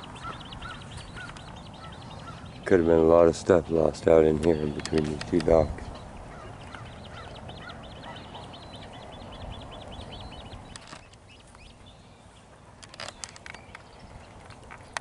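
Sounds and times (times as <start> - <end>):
birds chattering: 0.0 - 15.0
sharp clicks: 4.4 - 5.7.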